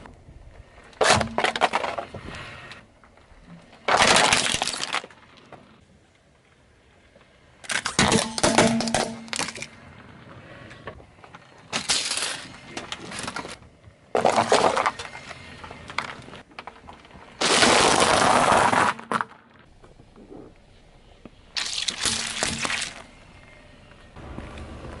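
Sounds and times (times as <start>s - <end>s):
pasta bag bursting and crunching: 17.4s - 19.2s
tyre crushing objects: 17.4s - 19.4s.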